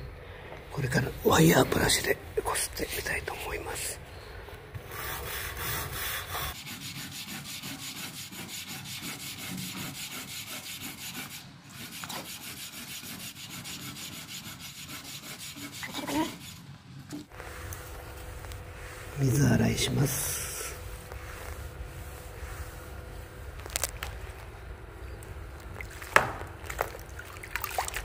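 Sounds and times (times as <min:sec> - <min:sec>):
deck brush scrubbing wet wood: 0:05.0 - 0:16.6, 0:17.2 - 0:24.7.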